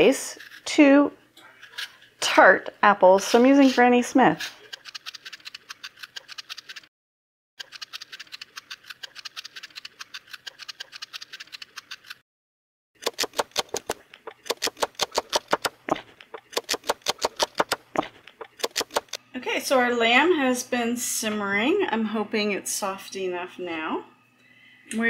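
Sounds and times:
vegetable peeler scraping apple: 0.2 - 0.8, 3.1 - 6.9, 7.6 - 12.2, 13.0 - 19.2
knife cutting on wooden board: 13.0 - 19.2.

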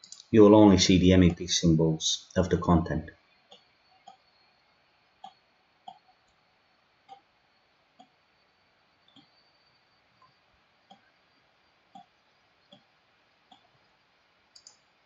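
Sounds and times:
computer mouse clicks: 0.0 - 0.3, 14.5 - 14.9.

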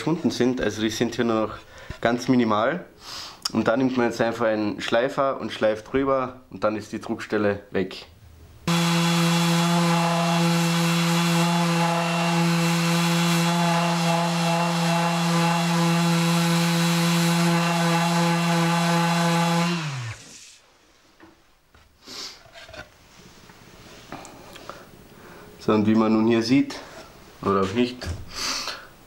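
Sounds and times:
sander motor winding down: 8.7 - 20.5
orbital sander sanding wood: 8.7 - 20.6.

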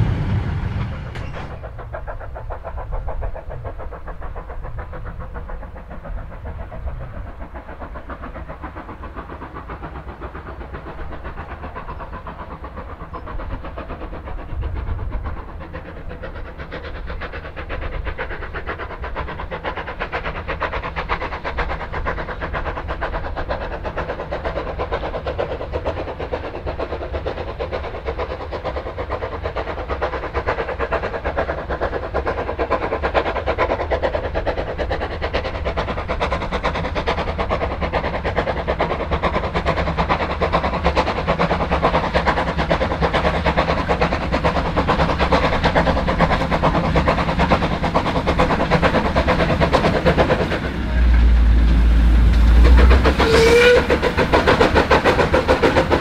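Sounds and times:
low rumble: 0.0 - 2.0, 50.5 - 53.3
steam train clattering: 0.0 - 56.0.

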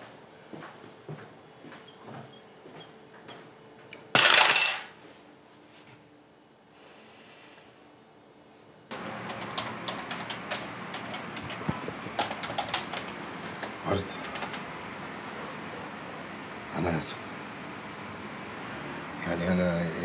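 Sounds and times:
typing on computer keyboard: 9.3 - 11.6, 12.2 - 13.2, 14.2 - 14.6.

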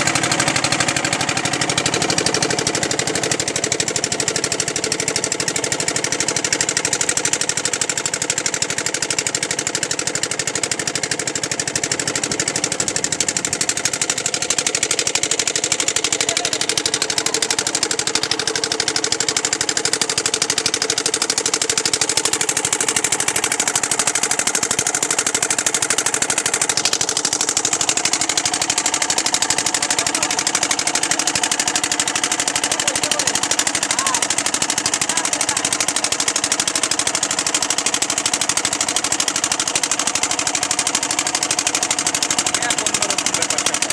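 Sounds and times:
boat engine running with knocking beat: 0.0 - 43.9.

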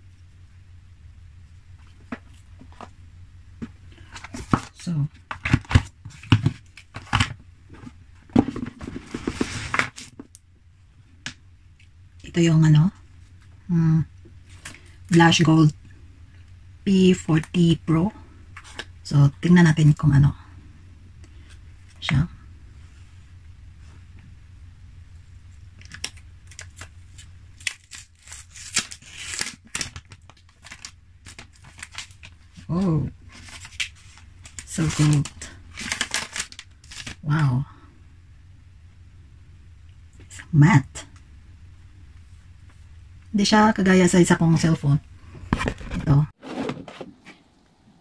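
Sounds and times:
low steady hum: 0.0 - 48.0
packaging rustling: 3.6 - 10.3, 25.8 - 37.2
plastic film crinkling: 25.8 - 37.3.

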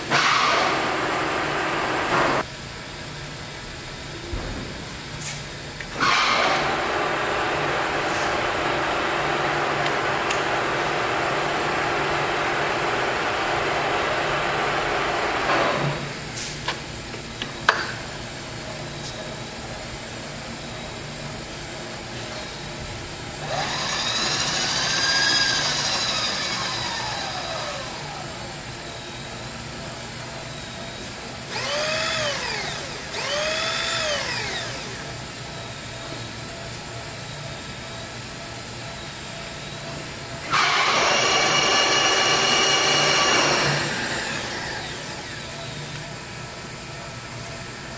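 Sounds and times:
steady machine hum: 0.0 - 47.9
power feed motors running: 5.9 - 17.5, 20.2 - 36.6, 38.8 - 47.9
motor whine rising and falling: 6.0 - 16.2, 23.4 - 29.1, 31.5 - 35.2, 40.4 - 46.2.

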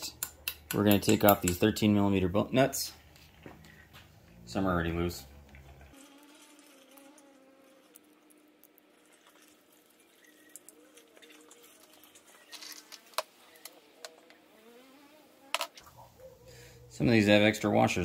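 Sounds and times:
faint metallic clicks and taps: 0.0 - 1.7.

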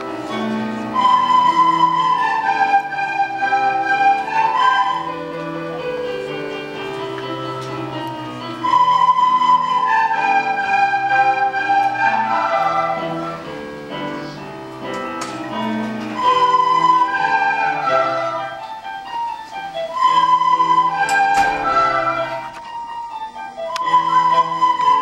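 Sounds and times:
children playing recorders: 0.0 - 25.0.

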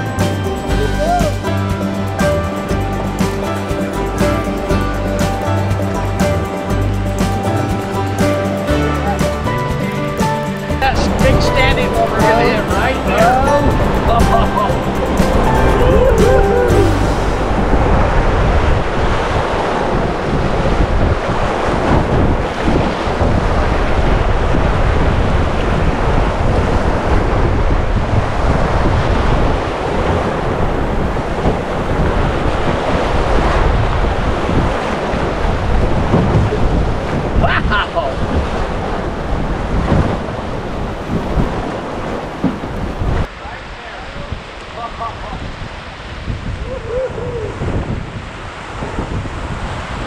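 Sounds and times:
river water rushing: 0.0 - 50.0
wind buffeting microphone: 9.3 - 43.4, 44.1 - 50.0.

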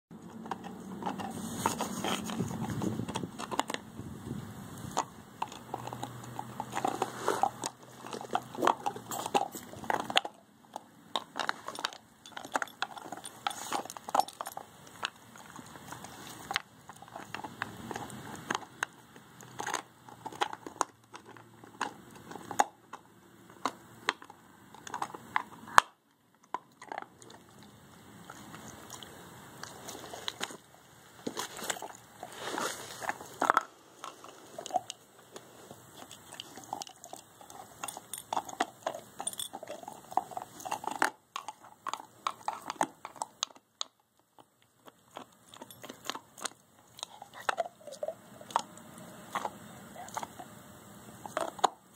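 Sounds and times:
dog gnawing a bone: 0.1 - 51.9
teeth clicking on chew: 35.9 - 50.5.

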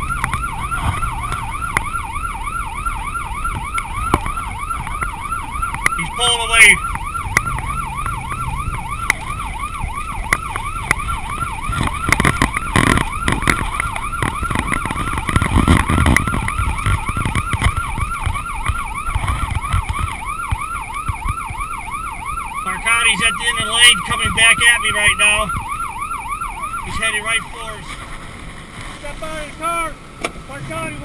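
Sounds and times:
police siren fast yelp: 0.0 - 27.9
car engine and road rumble: 0.0 - 31.0.

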